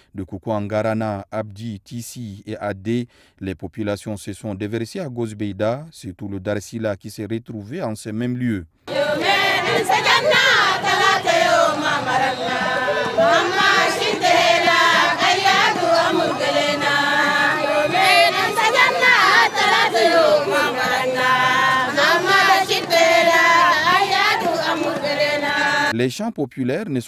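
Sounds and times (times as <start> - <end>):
crowd of women singing a chant: 8.9 - 25.9.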